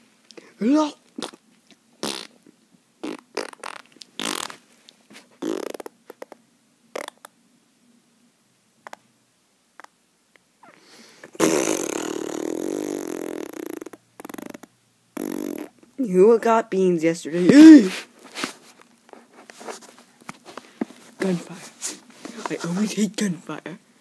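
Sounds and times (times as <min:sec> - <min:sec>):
mouth spitting pops: 0:01.2 - 0:01.4, 0:02.0 - 0:02.3, 0:03.0 - 0:04.6, 0:05.4 - 0:06.4, 0:07.0 - 0:07.3, 0:11.3 - 0:15.8
buzzing raspberry: 0:02.0 - 0:02.4, 0:03.0 - 0:04.6, 0:05.4 - 0:07.3, 0:11.4 - 0:15.8.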